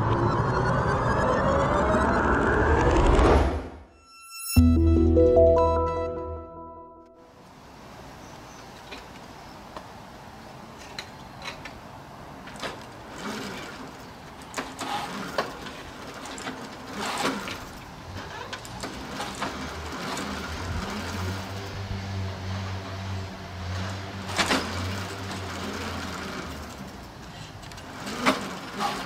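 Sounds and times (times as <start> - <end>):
moped pedals clicking and rattling: 12.4 - 21.5, 23.8 - 29.0.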